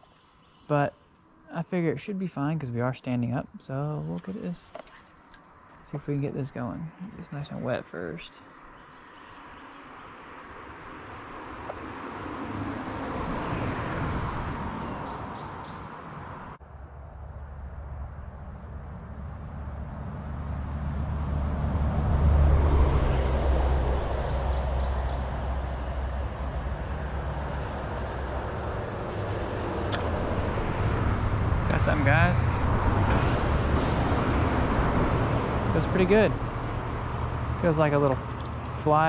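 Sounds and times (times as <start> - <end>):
insects trilling: 0.0 - 39.0
deep traffic rumble: 9.4 - 39.0
vehicle passing over bridge: 10.2 - 16.6, 19.2 - 39.0.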